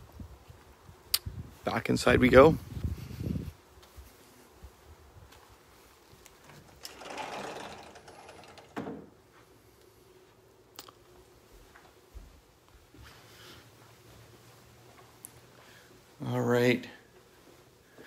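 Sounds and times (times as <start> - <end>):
sliding glass door rolling: 6.4 - 9.2.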